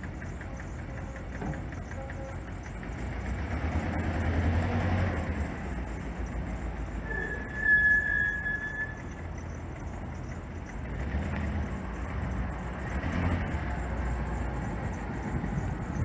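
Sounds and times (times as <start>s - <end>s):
truck engine rumbling: 0.0s - 16.0s
high squeal: 6.8s - 9.4s.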